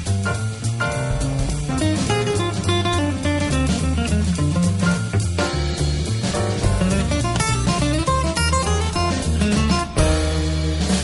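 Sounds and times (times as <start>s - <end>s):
jazzy guitar and drums music: 0.0s - 11.0s.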